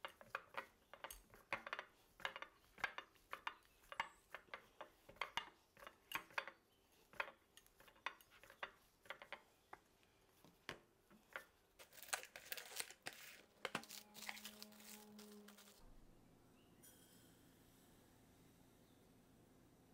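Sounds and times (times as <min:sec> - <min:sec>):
rustling: 0:07.8 - 0:15.8
low steady hum: 0:13.3 - 0:19.9.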